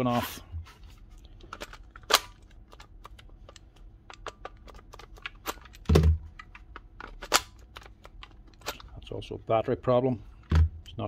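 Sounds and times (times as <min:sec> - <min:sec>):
plastic parts clicking and tapping: 0:01.2 - 0:09.0.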